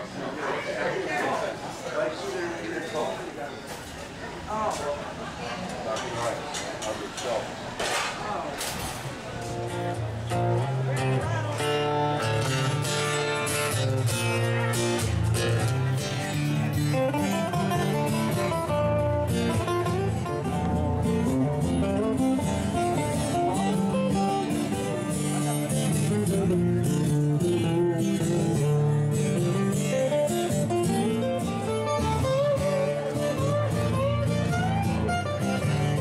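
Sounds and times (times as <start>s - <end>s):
picked guitar melody sliding: 9.4s - 36.0s
strummed acoustic guitar chords: 9.4s - 36.0s.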